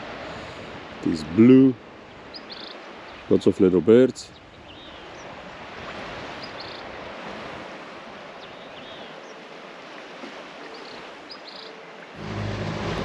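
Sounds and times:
water over calm sea: 0.0s - 13.0s
wind: 0.0s - 13.0s
small birds chirping: 2.2s - 3.4s, 4.2s - 5.4s, 6.4s - 6.9s, 8.4s - 9.5s, 10.7s - 11.9s.

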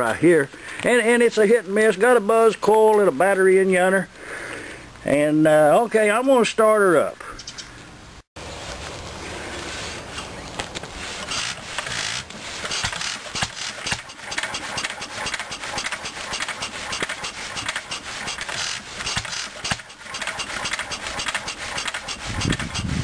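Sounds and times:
stationary engine knocking: 11.9s - 23.0s.

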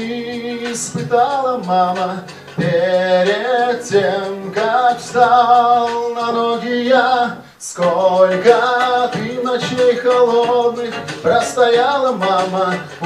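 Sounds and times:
karaoke backing track: 0.0s - 13.0s
man singing into a microphone: 0.0s - 13.0s.

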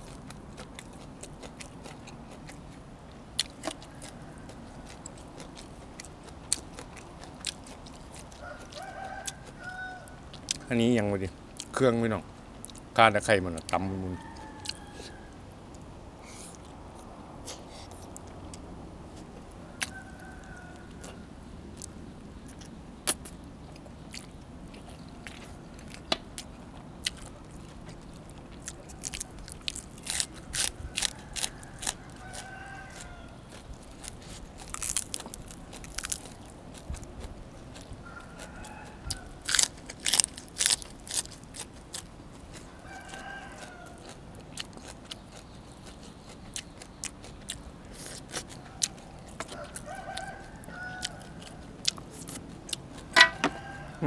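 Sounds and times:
crunchy bites and chewing: 0.0s - 10.7s, 13.5s - 18.6s, 19.2s - 54.0s
chickens calling: 7.0s - 11.2s, 19.3s - 40.6s, 41.4s - 54.0s.

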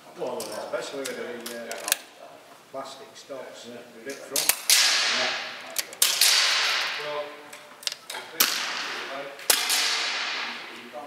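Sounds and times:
air rifle shots cracking: 4.4s - 7.3s, 8.3s - 10.8s.

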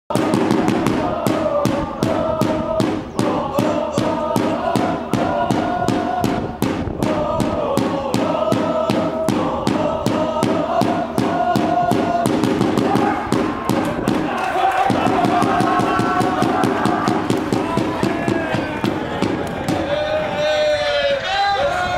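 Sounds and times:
fast even drum beat: 0.1s - 20.0s
football supporters chanting: 0.1s - 21.9s.

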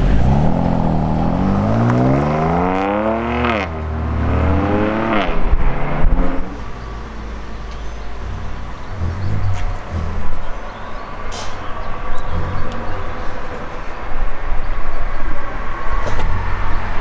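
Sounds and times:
car engine accelerating hard: 0.0s - 11.0s
steady background rumble: 7.2s - 17.0s.

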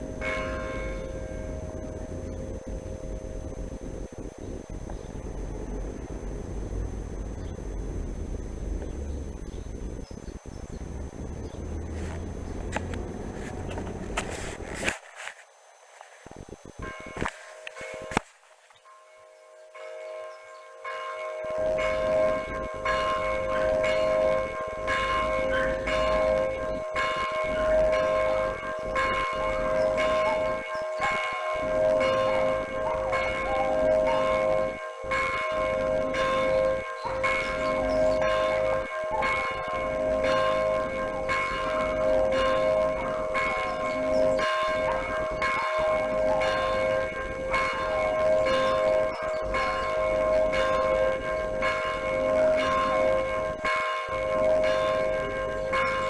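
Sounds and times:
church bell ringing: 0.0s - 5.1s, 16.8s - 56.0s.

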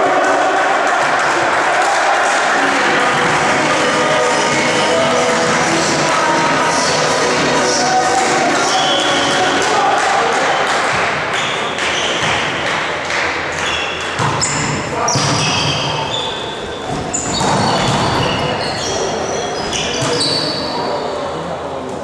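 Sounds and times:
players' voices and calls: 0.0s - 22.0s
volleyball hits: 13.6s - 16.1s, 16.9s - 18.6s
sneaker squeaks on court floor: 13.6s - 21.0s.

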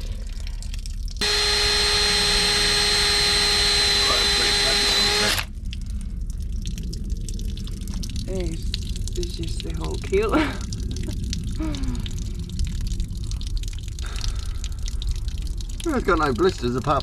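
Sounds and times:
cordless drill boring: 1.2s - 5.5s.

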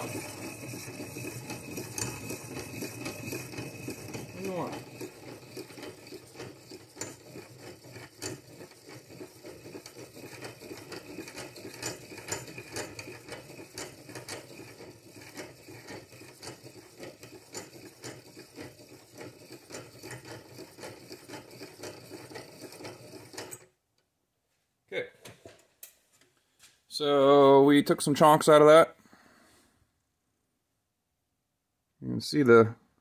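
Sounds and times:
filer grinding metal: 0.0s - 23.6s.

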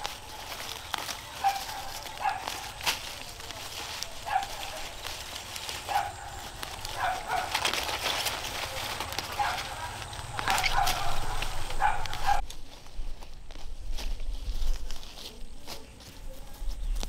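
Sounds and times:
animal calling: 0.0s - 12.4s.

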